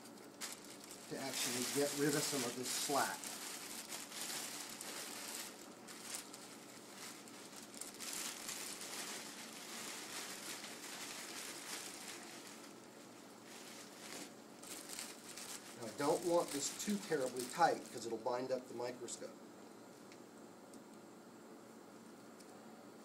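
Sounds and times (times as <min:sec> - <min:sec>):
plastic drape crinkling: 0:00.0 - 0:18.4.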